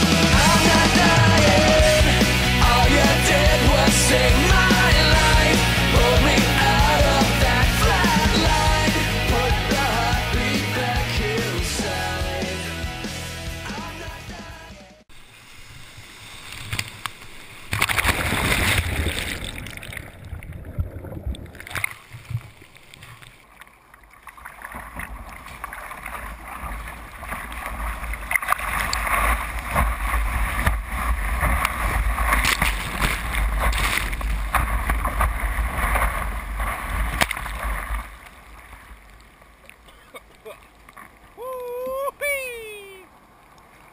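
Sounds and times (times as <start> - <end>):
surf and white water splashing: 13.6 - 23.7, 24.3 - 43.9.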